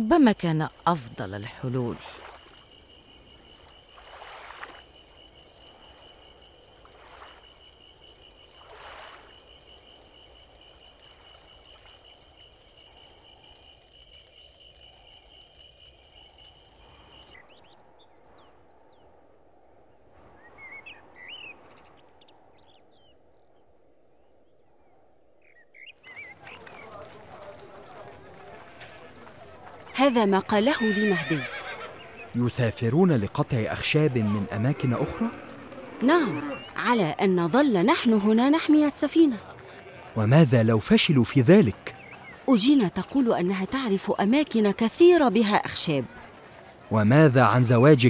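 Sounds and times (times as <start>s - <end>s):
frogs and insects trilling: 0.0s - 19.1s, 25.4s - 48.0s
bird chirps: 25.4s - 28.0s, 41.1s - 43.1s.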